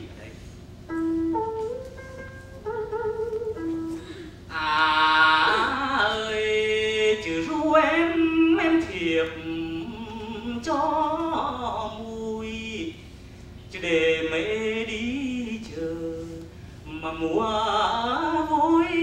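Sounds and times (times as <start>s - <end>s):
monochord wavering notes: 0.9s - 4.4s
man singing with vibrato: 2.8s - 19.0s.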